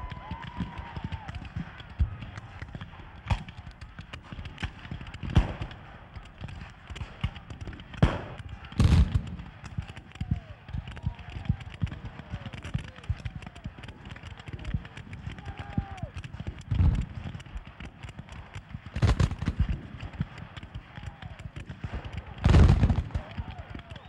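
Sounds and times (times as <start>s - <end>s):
musket fire cracks: 0.0s - 24.0s
heavy blast: 8.0s - 10.0s, 22.0s - 24.0s
men shouting: 15.3s - 16.1s.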